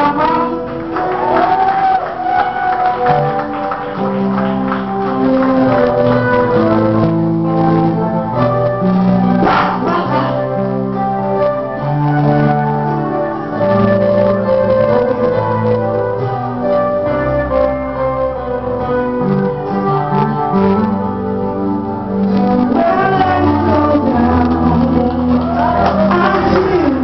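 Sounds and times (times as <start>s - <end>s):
person singing: 0.0s - 1.2s, 9.4s - 10.6s, 22.3s - 27.0s
organ-like keyboard chords: 3.0s - 27.0s
bass line: 4.0s - 27.0s.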